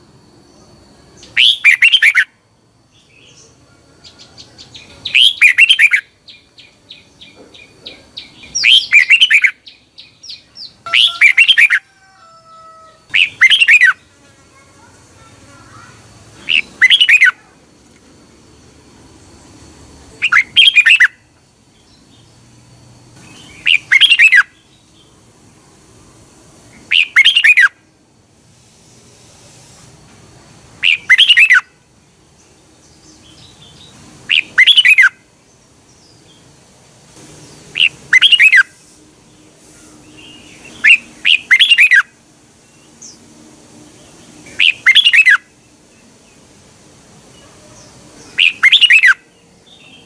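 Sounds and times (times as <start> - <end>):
bird singing quick notes: 40.1 - 42.1, 47.8 - 50.0.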